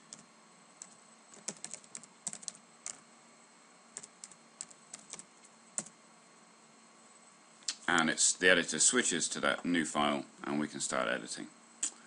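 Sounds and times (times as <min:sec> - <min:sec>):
computer keyboard typing: 0:00.8 - 0:03.0, 0:04.0 - 0:05.9.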